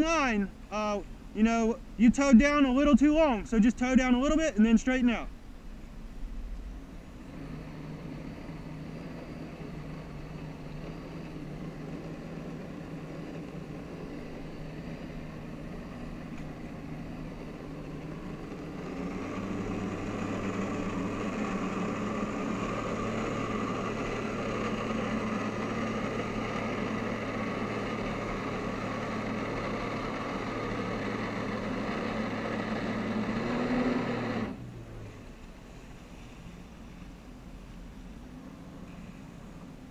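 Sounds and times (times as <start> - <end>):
jet ski engine running: 0.0 - 39.9.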